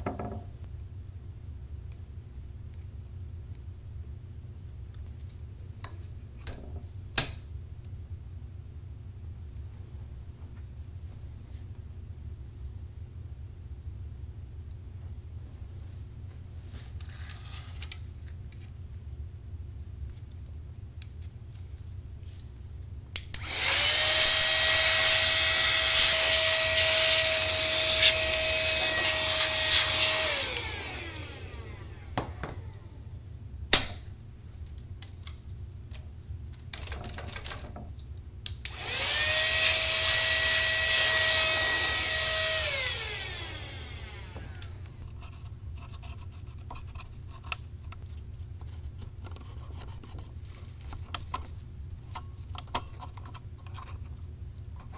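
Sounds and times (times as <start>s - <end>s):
electric air duster motor whine: 23.3s - 33.2s, 38.7s - 45.0s.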